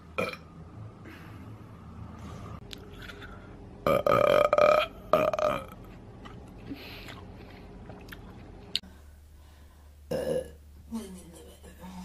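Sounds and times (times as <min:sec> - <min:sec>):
woman burping loudly: 0:00.2 - 0:00.4, 0:03.8 - 0:05.8, 0:10.1 - 0:10.6.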